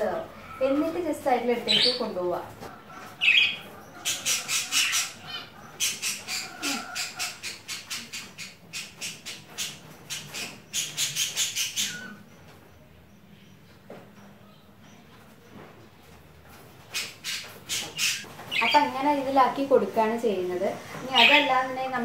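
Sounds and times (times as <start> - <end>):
budgerigar chirping and squawking: 1.6 - 2.1, 2.8 - 12.4, 16.8 - 19.0, 21.1 - 21.7.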